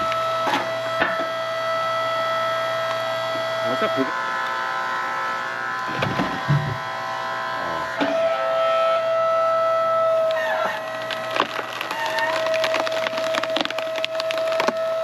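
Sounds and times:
log splitter motor whine: 0.0s - 15.0s
log splitter knocks: 5.9s - 6.8s.

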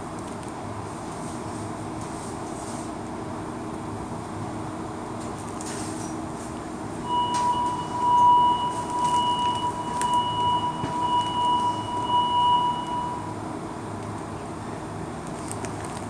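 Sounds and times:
low hum of train car: 0.0s - 16.0s
steady high door-warning beep: 7.0s - 13.4s.

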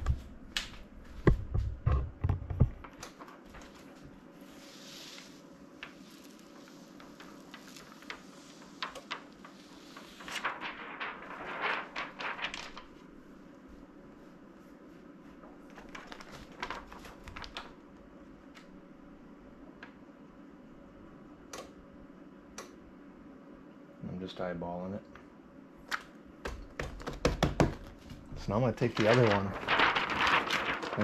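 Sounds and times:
faint steady hum: 0.0s - 31.0s
plastic sheet crinkling: 2.6s - 13.2s, 15.4s - 17.8s, 27.8s - 31.0s.

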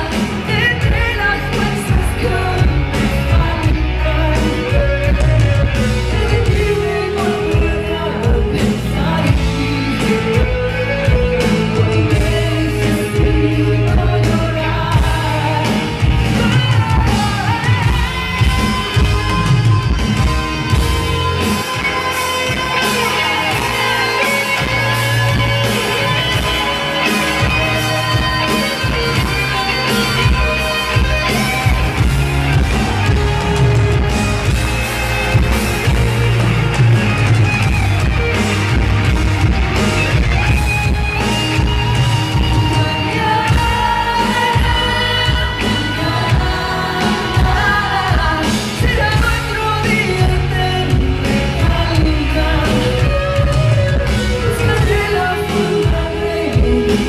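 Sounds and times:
woman singing into a microphone: 0.0s - 20.0s, 42.4s - 57.0s
live pop band playing: 0.0s - 57.0s.

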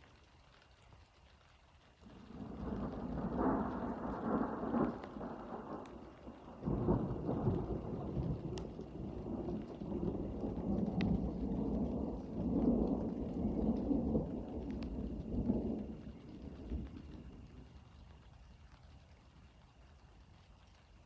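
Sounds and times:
faint rain ticks: 0.0s - 21.0s
thunder rumbling: 2.0s - 18.6s.

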